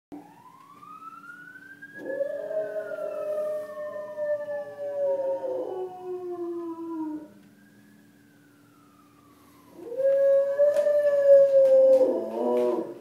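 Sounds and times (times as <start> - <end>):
siren wailing: 0.1 - 13.0
dog howling: 2.0 - 7.4, 9.8 - 13.0.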